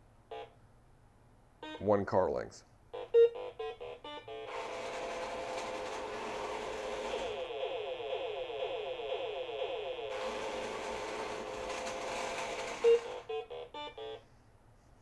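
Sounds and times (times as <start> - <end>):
toy electric motors whirring: 4.5 - 13.6
keypad beep: 12.8 - 13.2.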